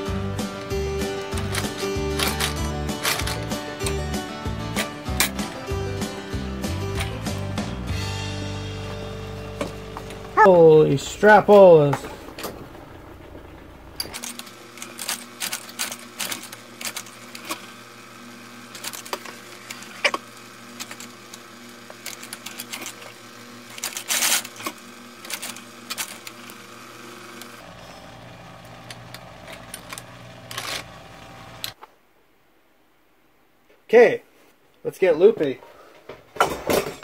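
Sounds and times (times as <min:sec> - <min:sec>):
sewing machine stitching leather: 0:00.6 - 0:04.0, 0:14.0 - 0:31.8.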